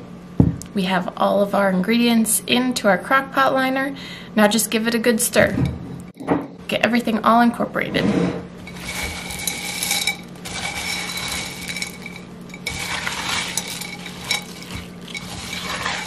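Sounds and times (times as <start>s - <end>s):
spoon stirring in a crock: 8.6s - 16.0s.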